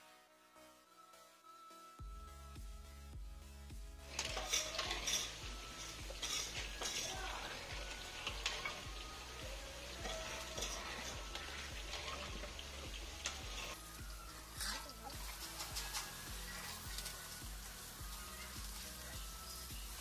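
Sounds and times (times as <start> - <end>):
metal skimmer scraping a pan: 4.0 - 20.0
oil sizzling while deep-frying: 4.0 - 20.0.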